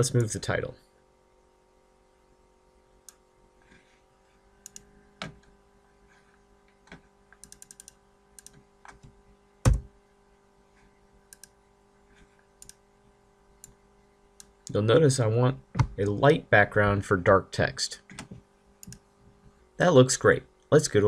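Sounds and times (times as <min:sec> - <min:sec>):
faint steady hum: 0:00.0 - 0:21.0
mouse clicks: 0:04.6 - 0:04.9, 0:07.4 - 0:08.6, 0:18.1 - 0:19.0
loud thump: 0:09.7 - 0:09.9.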